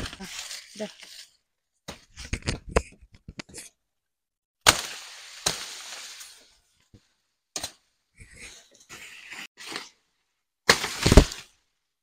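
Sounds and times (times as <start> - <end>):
dry leaves rustling: 0.0 - 1.4, 4.7 - 6.5
sugarcane stalks cracking: 4.6 - 6.5, 10.7 - 11.6.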